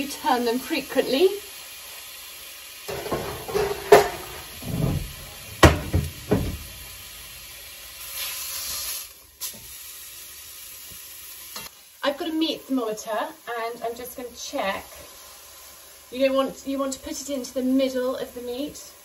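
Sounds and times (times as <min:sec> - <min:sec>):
meat sizzling in a pot: 0:00.0 - 0:19.0
metal clanks and knocks: 0:02.9 - 0:07.0.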